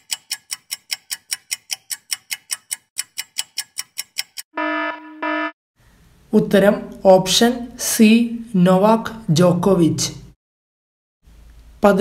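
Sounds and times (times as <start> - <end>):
fast clock ticks: 0.0 - 4.5
buzzy electronic beep: 4.6 - 5.6.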